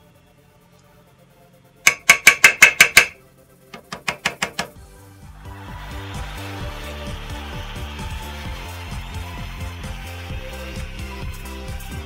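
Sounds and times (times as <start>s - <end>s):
background music: 0.0s - 12.0s
screwdriver tapping metal: 1.9s - 3.2s, 3.8s - 4.8s.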